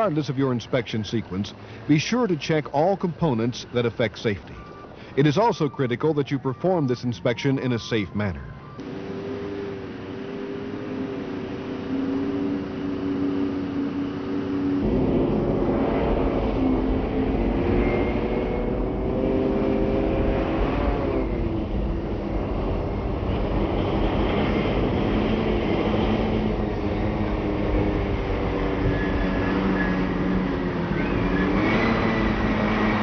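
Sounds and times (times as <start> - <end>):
truck diesel engine running: 0.0 - 19.7.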